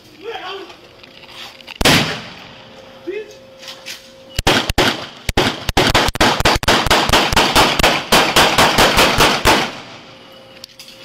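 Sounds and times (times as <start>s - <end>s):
rapid gunfire: 4.4s - 9.9s.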